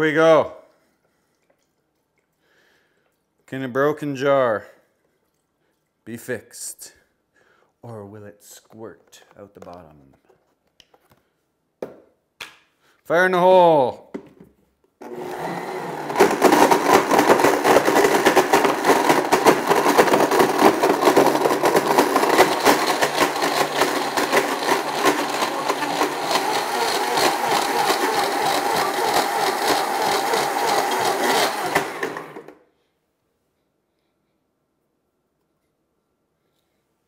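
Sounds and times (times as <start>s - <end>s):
blender motor whirring: 15.0s - 32.6s.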